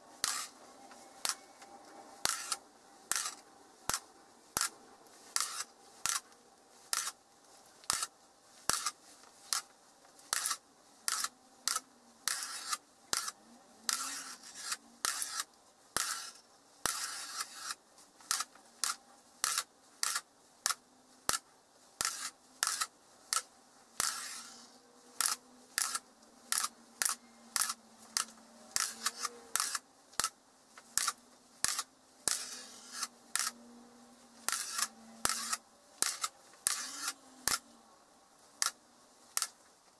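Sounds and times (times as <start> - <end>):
magnet balls clicking together: 10.3 - 17.7, 25.2 - 33.6.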